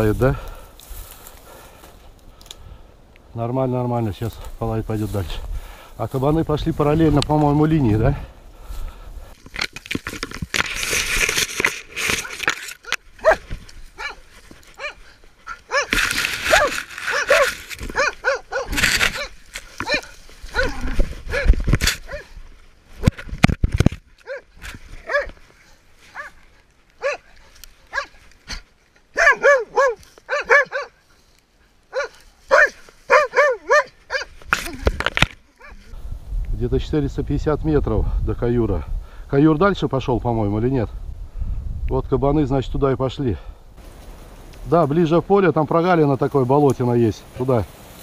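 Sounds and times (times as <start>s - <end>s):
fur rustling against microphone: 10.0s - 28.4s
dog barking: 13.2s - 13.4s, 14.0s - 14.2s, 14.8s - 21.5s, 22.1s - 22.3s, 24.2s - 25.4s, 26.1s - 26.4s, 27.0s - 27.3s, 27.9s - 28.2s, 29.2s - 31.0s, 31.9s - 34.3s.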